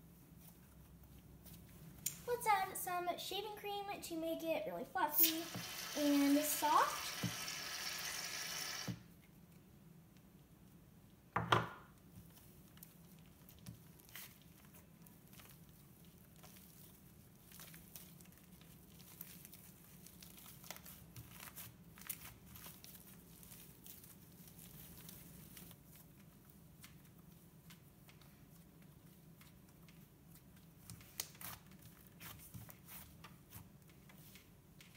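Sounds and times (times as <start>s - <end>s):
slime squeezed by hand: 5.1s - 8.9s.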